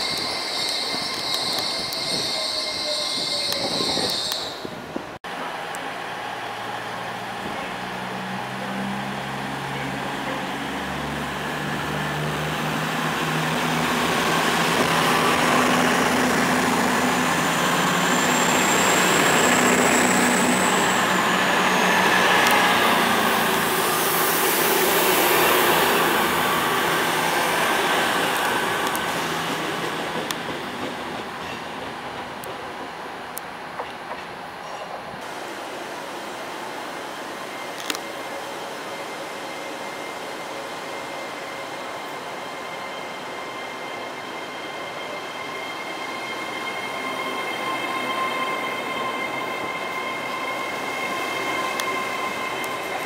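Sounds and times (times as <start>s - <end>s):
thin high squeal: 0.0s - 4.6s
diesel train passing: 0.0s - 53.0s.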